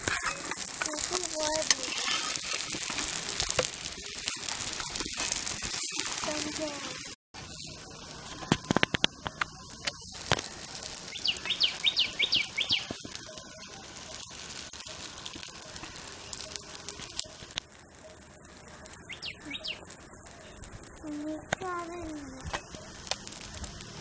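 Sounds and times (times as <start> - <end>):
small bird chirping: 10.5 - 13.6, 18.1 - 22.2.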